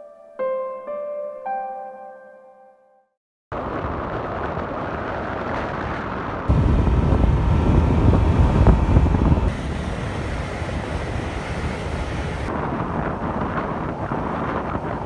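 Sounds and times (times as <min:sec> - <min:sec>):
wind buffeting microphone: 0:03.5 - 0:15.0
road noise: 0:03.6 - 0:15.0.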